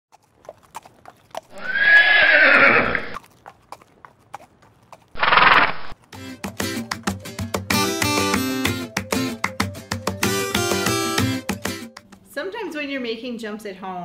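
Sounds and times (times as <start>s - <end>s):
hoof clip-clops: 0.1s - 6.1s
horse whinnying: 1.5s - 3.2s, 5.2s - 6.0s.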